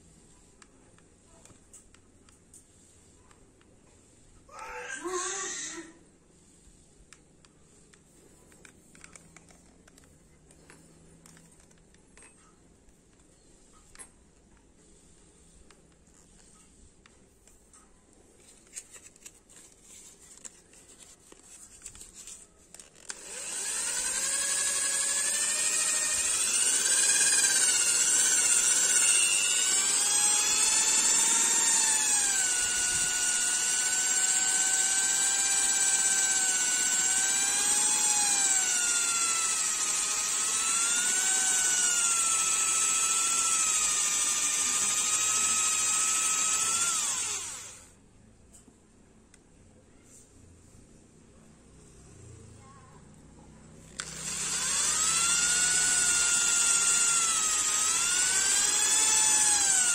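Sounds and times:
electric drill motor whining: 22.7 - 47.9, 53.9 - 59.9.

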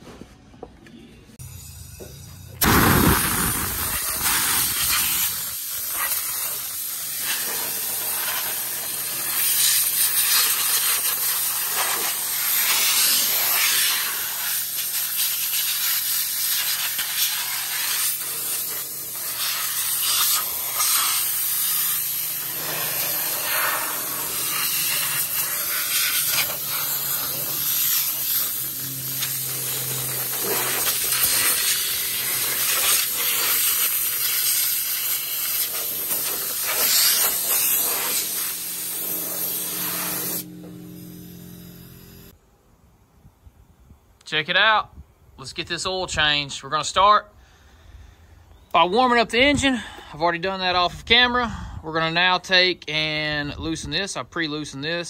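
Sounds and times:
band saw blade hissing: 12.2 - 42.3
sawmill engine humming: 38.6 - 42.3.

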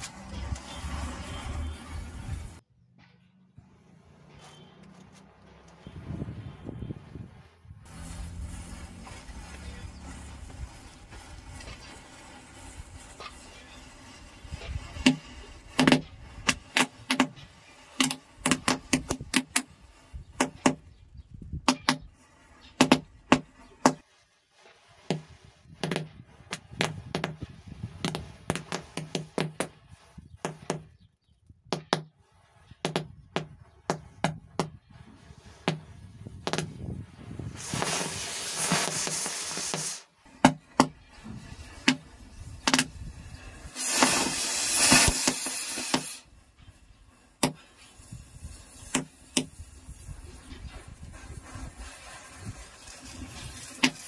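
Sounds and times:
matches flaring with hiss: 0.0 - 2.6, 7.0 - 30.8, 32.2 - 54.0
matches igniting with crackling pops: 7.8 - 20.8, 37.5 - 46.4, 47.2 - 54.0.

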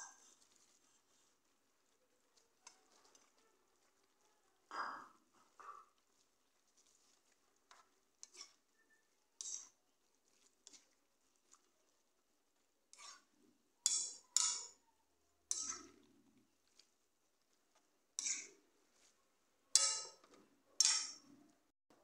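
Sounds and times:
metal spatula scraping metal pan: 7.7 - 9.8, 12.9 - 14.8, 15.5 - 16.1, 18.2 - 18.6, 19.7 - 21.3.

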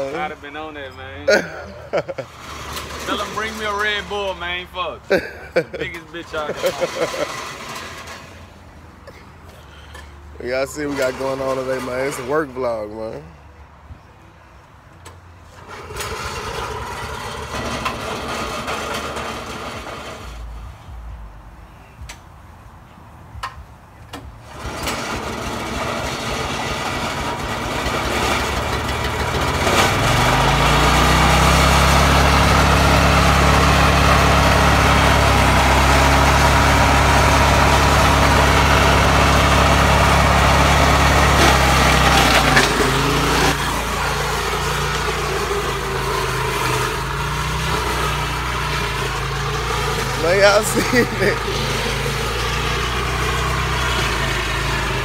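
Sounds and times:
small gasoline engine revving: 1.3 - 4.4, 5.1 - 8.5, 15.6 - 20.4, 24.4 - 55.0.

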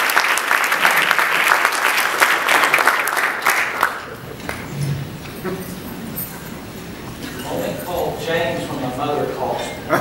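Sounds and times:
crowd applauding: 0.0 - 4.8.

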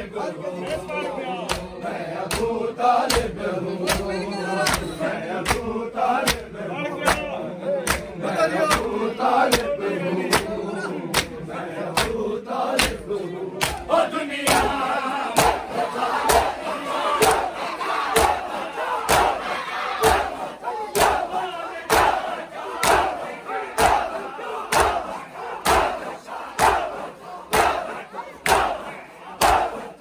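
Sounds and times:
men chanting together: 0.0 - 30.0
hands slapping bare chests: 1.4 - 8.1, 8.7 - 9.7, 10.3 - 10.5, 11.1 - 13.9, 14.5 - 14.7, 15.4 - 15.6, 19.1 - 19.4, 22.8 - 23.2, 24.7 - 26.0, 26.6 - 27.8, 29.4 - 29.8.

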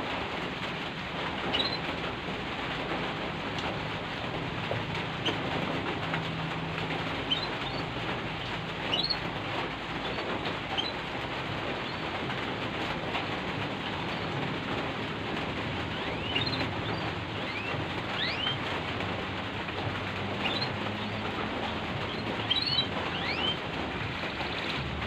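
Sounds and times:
rain falling: 0.0 - 25.0
bird chirps: 8.9 - 9.2, 16.1 - 18.6, 22.1 - 23.6.

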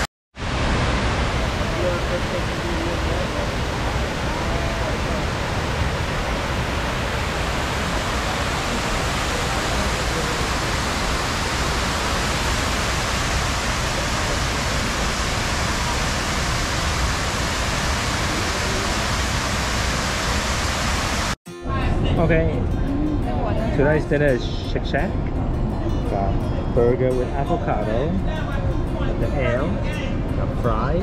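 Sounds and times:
waterfall rushing: 0.0 - 21.4.

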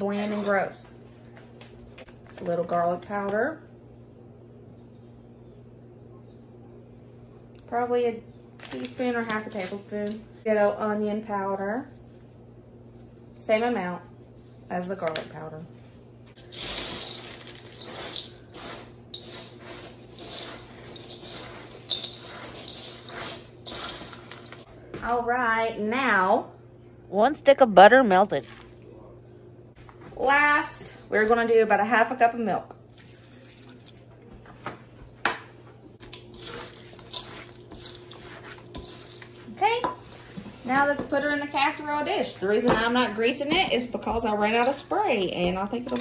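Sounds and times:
spoon stirring in metal bowl: 16.3 - 24.7, 36.0 - 41.2, 45.4 - 46.0.

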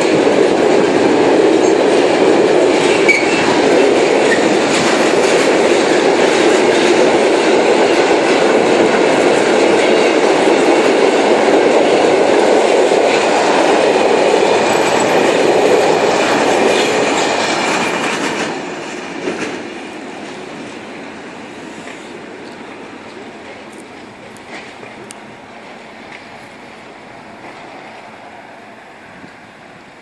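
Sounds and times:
train knock: 0.0 - 20.8
train wheels rumbling on rail: 0.0 - 30.0.

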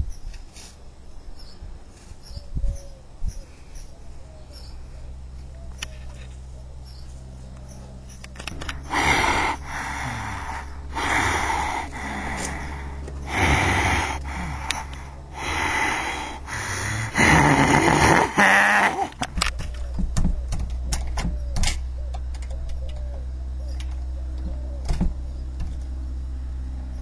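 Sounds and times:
steady low hum: 0.0 - 27.0
person breathing heavily: 8.6 - 19.3.

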